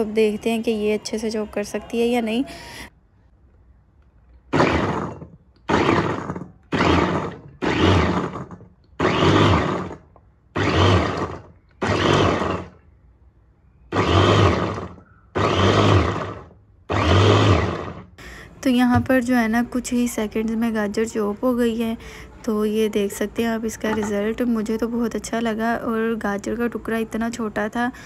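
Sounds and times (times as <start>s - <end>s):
electric chopper chopping carrot: 4.5s - 10.0s, 10.6s - 12.7s, 13.9s - 18.1s.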